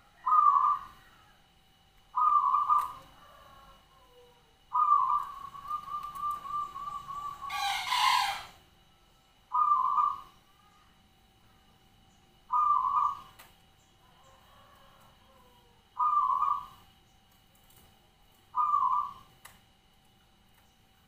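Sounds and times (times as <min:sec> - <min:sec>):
zebra dove cooing: 0:00.0 - 0:01.4, 0:02.1 - 0:08.6, 0:09.5 - 0:10.7, 0:12.5 - 0:13.4, 0:14.1 - 0:16.8, 0:18.5 - 0:19.4
harsh bird call burst: 0:06.5 - 0:08.6.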